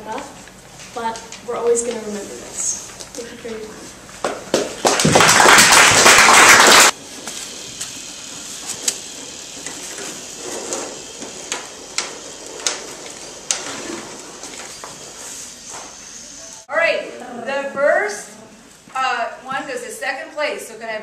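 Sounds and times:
many hands clapping: 0:04.2 - 0:07.0.

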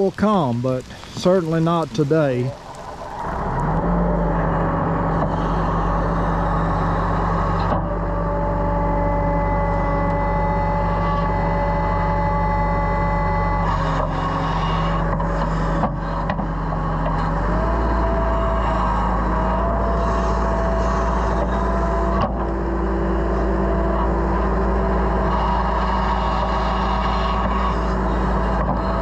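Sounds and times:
diesel engine running: 0:00.0 - 0:29.0
thin whine: 0:00.0 - 0:29.0.

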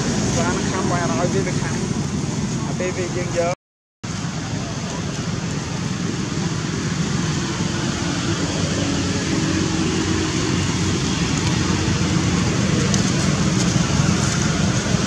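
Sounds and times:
distant road traffic: 0:00.0 - 0:15.0.

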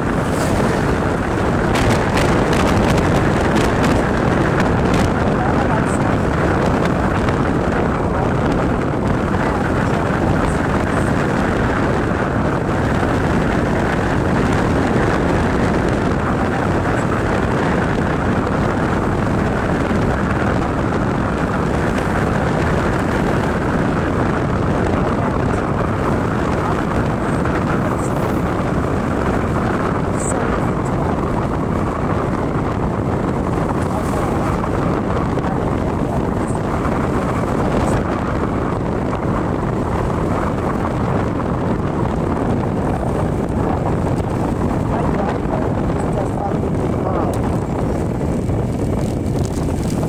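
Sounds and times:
motorcycle road noise: 0:00.0 - 0:50.0
wind rushing on microphone: 0:00.0 - 0:50.0.

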